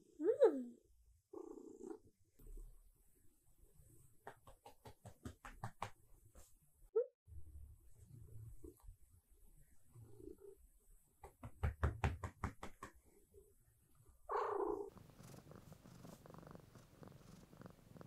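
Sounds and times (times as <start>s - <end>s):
cat purring: 1.3s - 2.8s, 8.0s - 11.0s, 14.0s - 18.0s.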